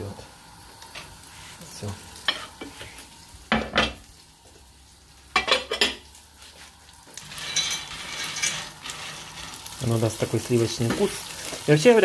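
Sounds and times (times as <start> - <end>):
food sizzling in frying pan: 0.0 - 12.0
dish and utensils clattering: 5.4 - 6.0, 7.2 - 8.7
spatula stirring in pan: 6.6 - 9.8.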